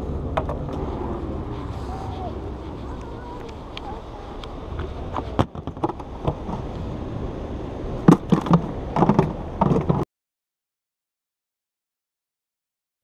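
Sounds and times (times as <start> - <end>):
low steady rumble: 0.0 - 10.0
sharp knocks and clunks: 5.1 - 6.7, 8.0 - 10.0.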